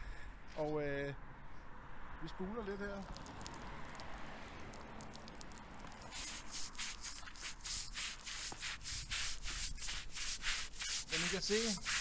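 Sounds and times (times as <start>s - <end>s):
deck brush scrubbing wet concrete: 6.1s - 12.0s.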